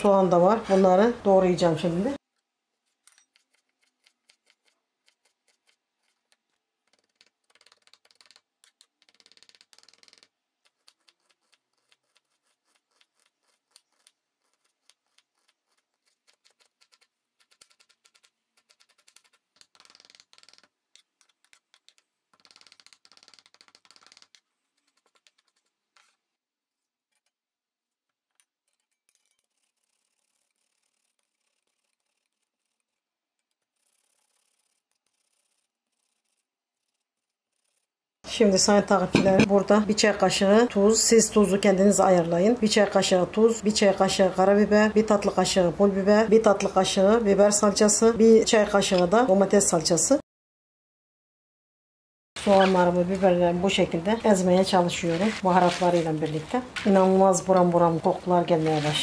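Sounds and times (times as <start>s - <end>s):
knife chopping on cutting board: 39.2s - 39.5s.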